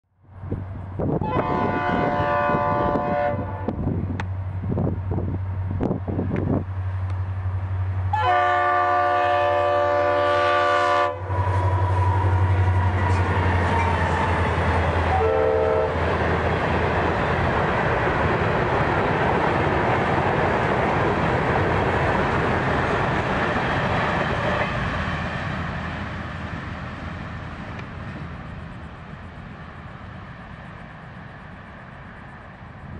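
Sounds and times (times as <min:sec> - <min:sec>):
train wheels on rails: 0:00.4 - 0:32.9
locomotive horn: 0:01.1 - 0:03.8, 0:08.1 - 0:14.3, 0:15.0 - 0:16.1.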